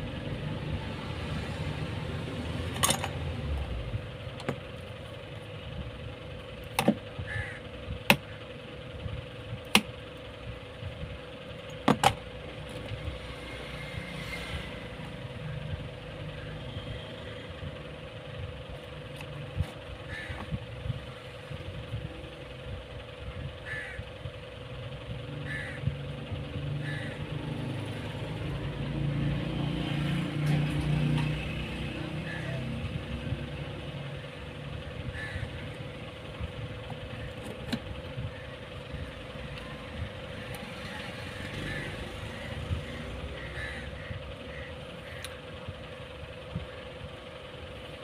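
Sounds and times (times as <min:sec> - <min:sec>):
low engine rumble: 0:00.0 - 0:48.0
bird calling: 0:07.1 - 0:08.5, 0:20.0 - 0:20.6, 0:34.0 - 0:45.7.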